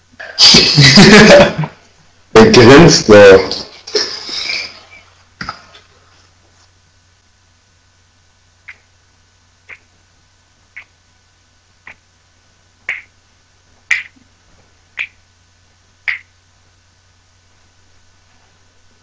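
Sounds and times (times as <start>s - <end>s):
finger snaps: 9.6s - 9.9s, 11.8s - 12.0s, 12.8s - 13.1s, 13.9s - 14.2s, 15.0s - 15.2s, 16.0s - 16.3s.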